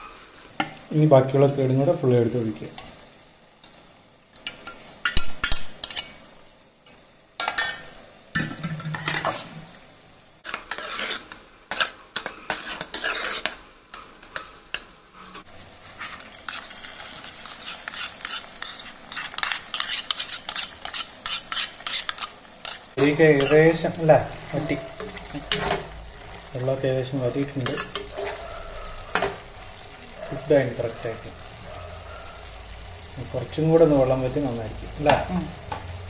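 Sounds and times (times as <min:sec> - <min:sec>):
hot oil sizzling and crackling: 0:00.0 - 0:36.0
spoon scraping and knocking a pot: 0:24.5 - 0:25.9, 0:27.6 - 0:29.4.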